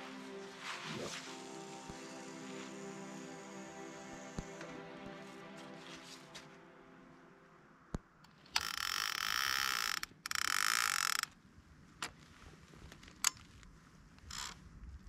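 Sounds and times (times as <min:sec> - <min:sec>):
mechanical ratcheting: 0:08.5 - 0:11.3.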